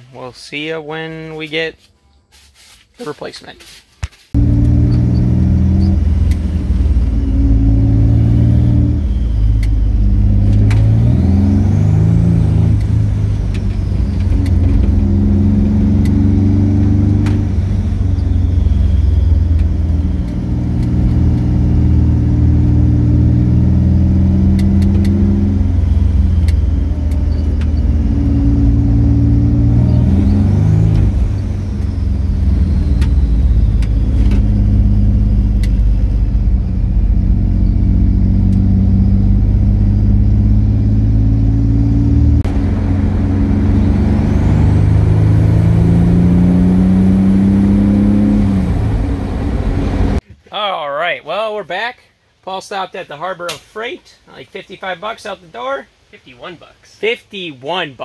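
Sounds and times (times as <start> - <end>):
car engine running: 4.4 - 50.2.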